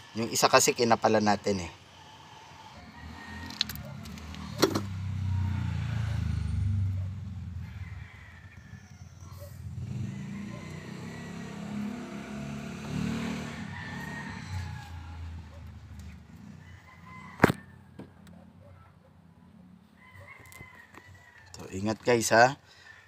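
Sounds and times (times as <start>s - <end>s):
passing vehicle rumble: 1.4s - 18.5s
rooster crowing faintly: 2.4s - 12.4s, 13.2s - 15.8s, 16.4s - 19.0s, 19.9s - 23.0s.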